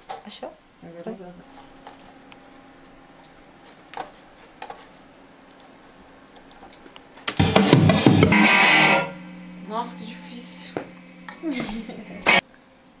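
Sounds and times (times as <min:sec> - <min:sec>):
low steady hum: 0:00.4 - 0:13.0
faint clicks: 0:05.5 - 0:05.7, 0:06.3 - 0:07.4
recorded music playing loudly: 0:07.3 - 0:09.2.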